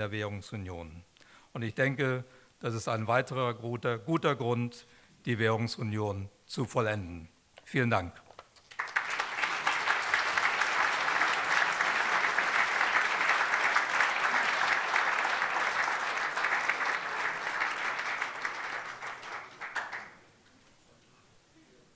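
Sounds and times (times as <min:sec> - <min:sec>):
audience applause: 0:08.7 - 0:20.2.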